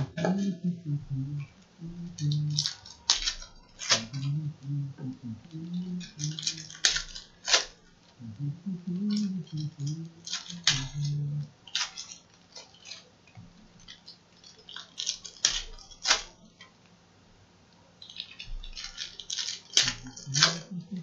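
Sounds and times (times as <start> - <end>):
low murmur: 0.0 - 2.7, 3.9 - 6.8, 8.2 - 11.5
foil wrappers crinkling and tearing: 2.1 - 4.4, 5.5 - 8.2, 9.0 - 16.8, 18.0 - 21.0.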